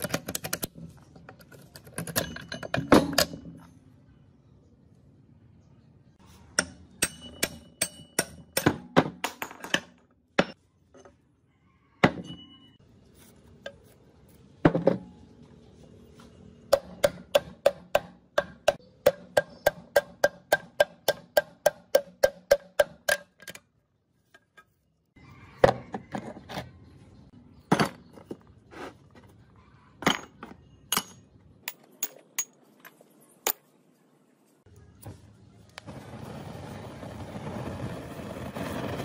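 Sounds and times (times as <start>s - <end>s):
metal parts clanking: 0.0s - 3.7s
hammer striking metal: 6.5s - 10.6s, 16.7s - 23.4s.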